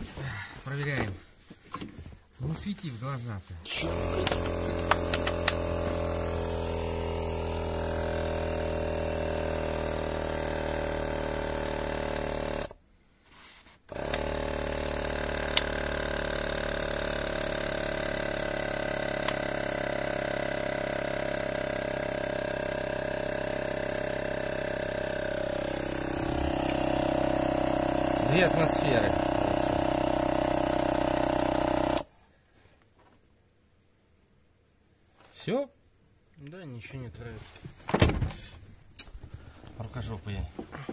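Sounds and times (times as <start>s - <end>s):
air compressor running: 3.7s - 12.8s, 13.9s - 32.1s.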